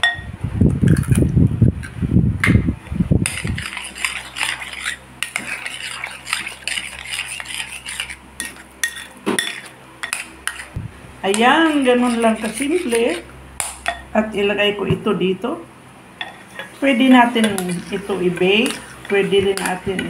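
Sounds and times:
metal spoon scraping a bowl: 3.2s - 14.0s, 16.2s - 20.0s
spoon clinking against bowl: 8.4s - 10.7s.

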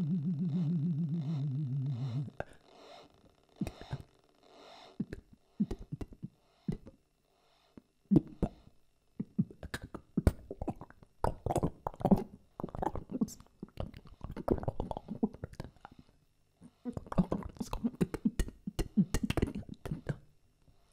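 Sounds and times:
warbling vocal drone: 0.0s - 2.6s, 8.1s - 15.8s
mouth clicks and lip pops: 9.2s - 15.8s.

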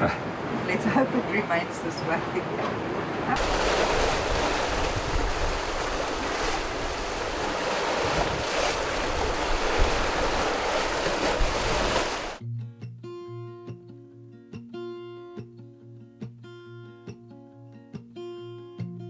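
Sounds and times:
sea washing past boat: 0.0s - 12.4s
wind on microphone: 3.3s - 12.4s
acoustic guitar music: 12.4s - 19.0s.

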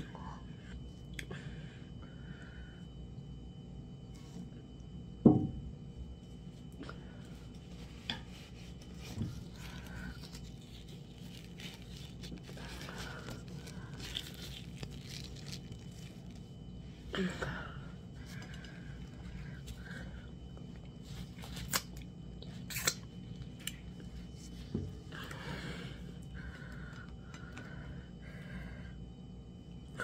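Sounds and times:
dishes knocking on table: 5.3s - 5.6s
soft handling noises: 6.2s - 16.8s.

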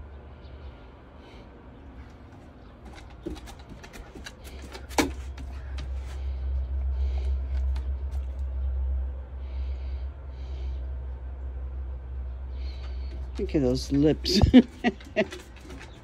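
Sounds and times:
puppies scuffling: 2.0s - 8.5s, 12.8s - 16.0s.

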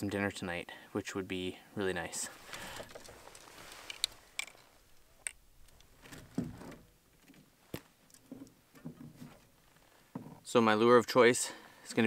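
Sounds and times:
rustling of line and clothing: 1.8s - 10.4s.

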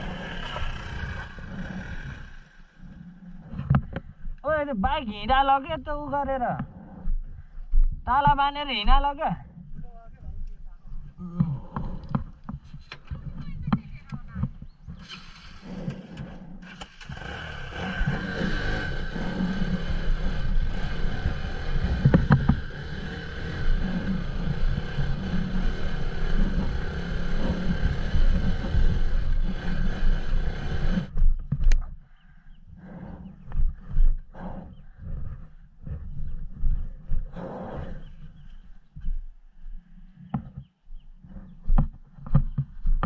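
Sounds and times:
motorcycle engine under load: 0.0s - 3.0s, 15.0s - 31.8s.

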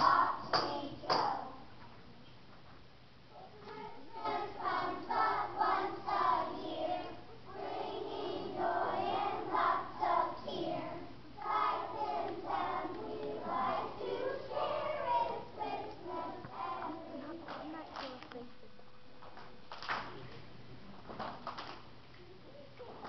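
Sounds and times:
children singing in choir: 4.1s - 17.0s.

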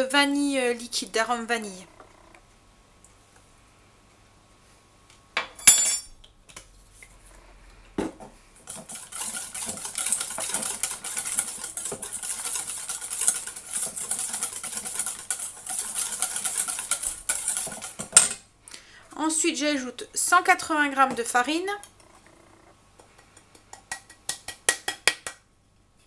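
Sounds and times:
whisk scraping metal bowl: 8.6s - 18.2s.

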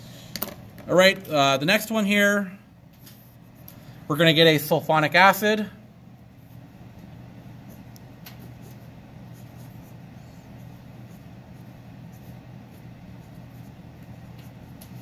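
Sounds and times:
steady low hum: 0.0s - 15.0s
pencil scratching on paper: 7.7s - 15.0s.

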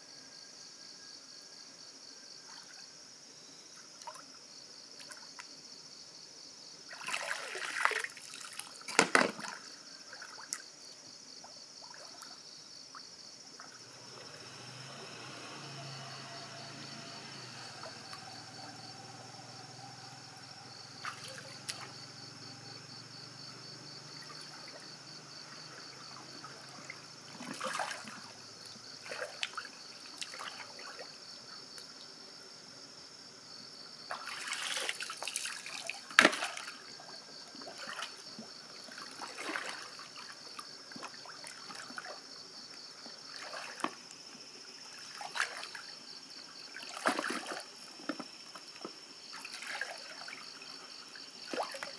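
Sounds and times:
river water splashing: 6.9s - 10.7s, 11.8s - 12.4s, 13.0s - 32.3s, 34.0s - 51.9s.

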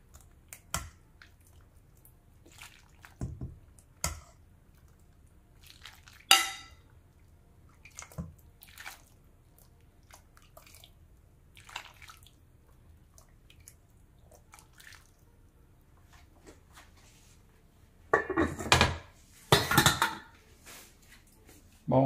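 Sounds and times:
soup dripping: 4.7s - 15.2s
ladle clinking against metal pot: 6.3s - 6.8s.

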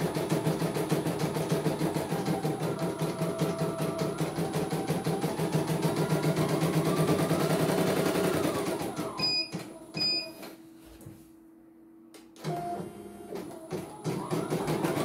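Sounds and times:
embroidery machine stitching clatter: 0.0s - 9.7s, 13.3s - 15.0s.

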